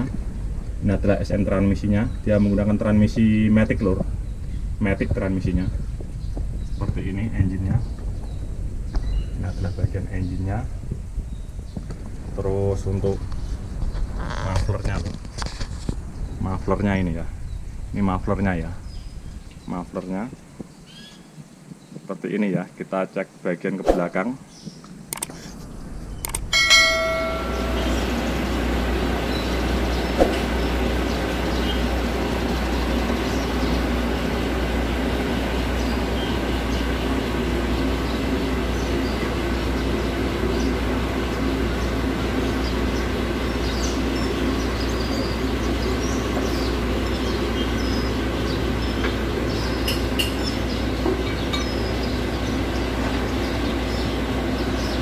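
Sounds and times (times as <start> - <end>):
diesel engine running: 25.4 - 55.0
short electronic chime: 26.6 - 28.0.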